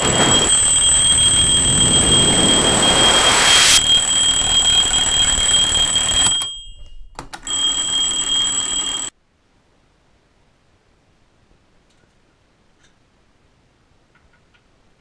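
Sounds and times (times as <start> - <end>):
hissing noise: 0.0 - 4.9
shrill electronic alarm tone: 0.0 - 9.1.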